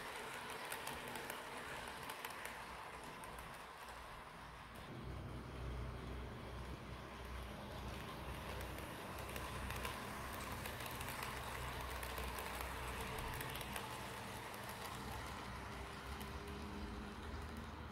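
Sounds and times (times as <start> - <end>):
model train wheels rattling: 0.0 - 4.9, 5.6 - 17.9.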